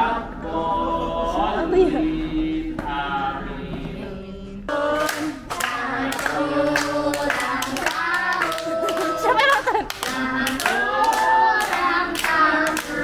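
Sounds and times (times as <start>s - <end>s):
group singing in unison: 0.0s - 13.0s
children singing: 2.2s - 13.0s
hand claps: 5.0s - 13.0s.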